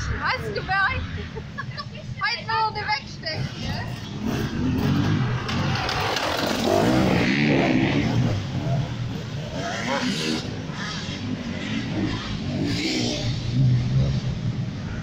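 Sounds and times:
motorcycle accelerating past: 0:03.4 - 0:15.0.

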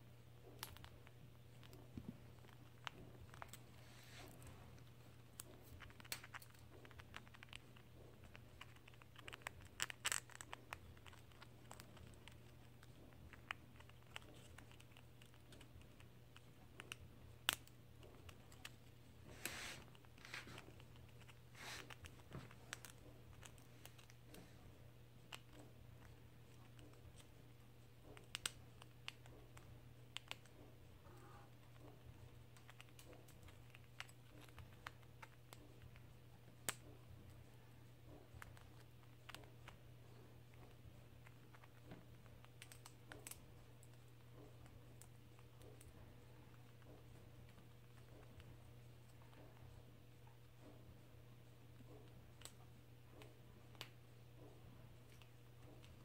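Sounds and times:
squirrel gnawing on stick: 0:00.0 - 0:56.0.

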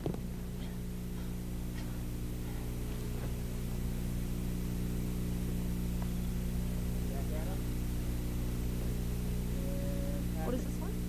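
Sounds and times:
steady electrical hum: 0:00.0 - 0:11.0.

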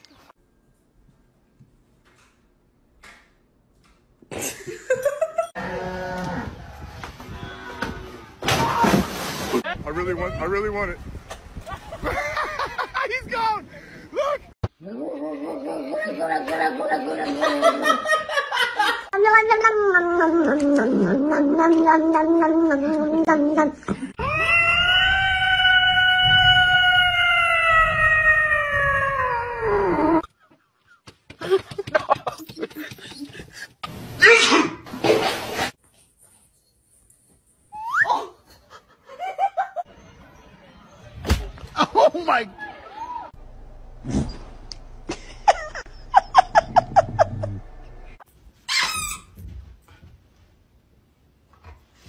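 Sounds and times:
cat yowling: 0:24.2 - 0:30.2.

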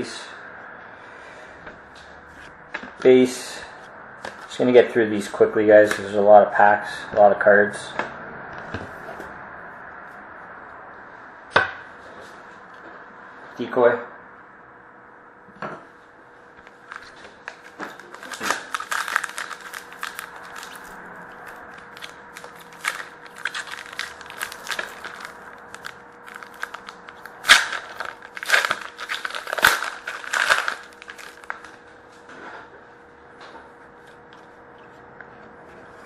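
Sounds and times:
faint steady hum: 0:00.0 - 0:36.0
wrappers crinkling and tearing: 0:16.8 - 0:31.8.

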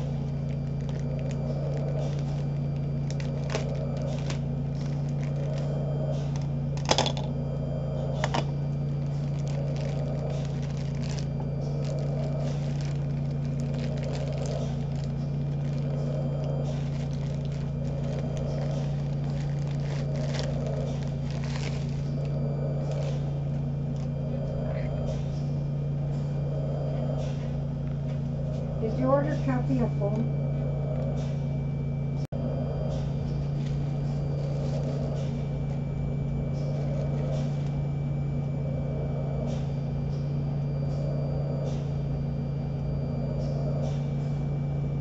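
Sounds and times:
low machine hum: 0:00.0 - 0:45.0
packaging clicks and crinkles: 0:00.2 - 0:07.3, 0:08.3 - 0:23.0.

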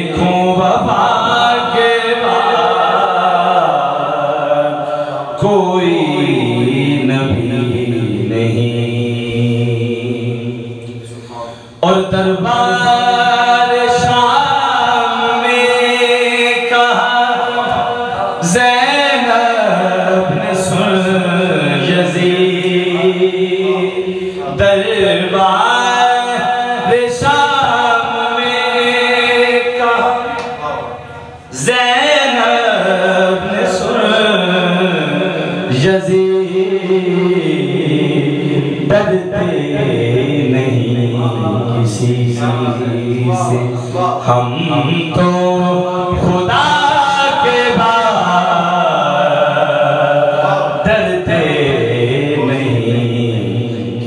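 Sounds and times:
man singing into a microphone: 0:00.0 - 0:54.0.

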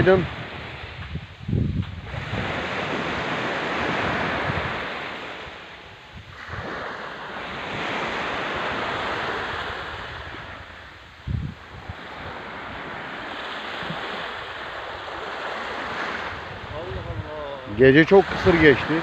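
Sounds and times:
waves washing up a sand beach: 0:00.0 - 0:19.0.

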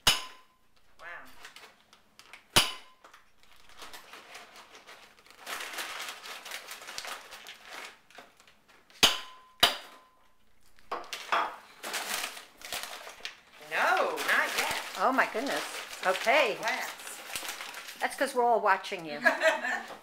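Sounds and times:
hammer striking wine glass: 0:00.0 - 0:00.6, 0:02.6 - 0:03.0, 0:09.0 - 0:10.1
paper bag rustling: 0:03.4 - 0:08.6, 0:11.1 - 0:18.5.

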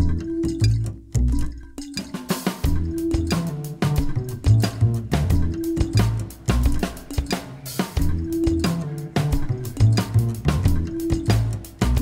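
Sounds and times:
background music with drum beat: 0:00.0 - 0:12.0.

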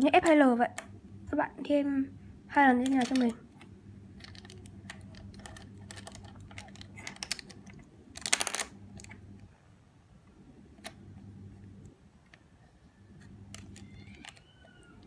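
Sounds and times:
low steady hum: 0:00.0 - 0:15.0
plastic cube pieces clicking: 0:02.8 - 0:03.4, 0:04.2 - 0:09.1, 0:13.5 - 0:15.0.

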